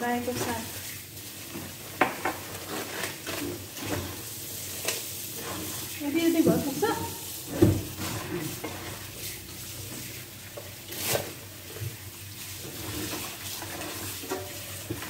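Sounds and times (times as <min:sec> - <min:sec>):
tap running into steel bowl: 0:02.0 - 0:02.4.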